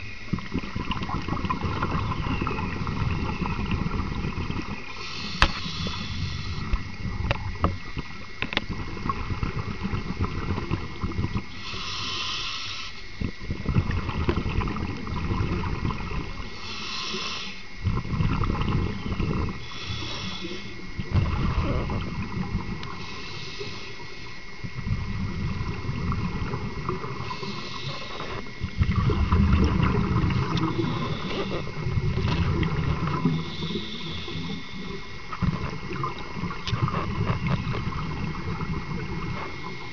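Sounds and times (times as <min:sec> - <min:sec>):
exhaled bubbles rumbling: 0:00.0 - 0:11.9, 0:13.0 - 0:39.9
regulator inhalation hiss: 0:04.8 - 0:07.0, 0:11.4 - 0:13.6, 0:16.3 - 0:17.8, 0:19.0 - 0:24.7, 0:26.4 - 0:29.1, 0:29.8 - 0:36.6.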